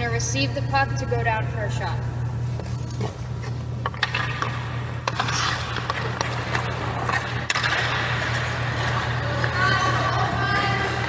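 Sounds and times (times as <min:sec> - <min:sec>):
steady low hum: 0:00.0 - 0:11.0
skate blades scraping on ice: 0:02.6 - 0:11.0.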